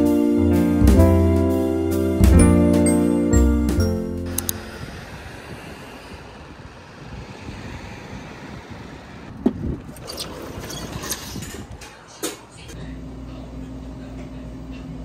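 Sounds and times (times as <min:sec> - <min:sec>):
traffic hum and hiss: 0:04.2 - 0:12.8.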